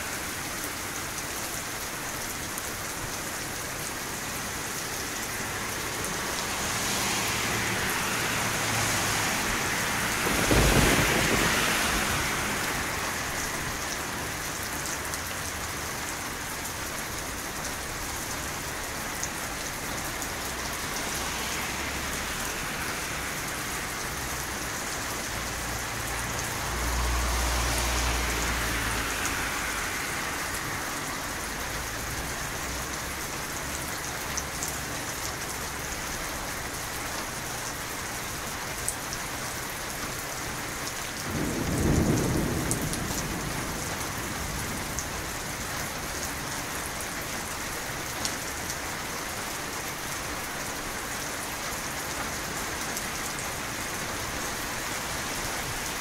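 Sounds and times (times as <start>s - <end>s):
steady rain: 0.0s - 56.0s
thunder rumbling: 9.9s - 13.1s, 41.3s - 45.5s
loud thunderclap: 10.2s - 12.6s, 41.3s - 45.0s.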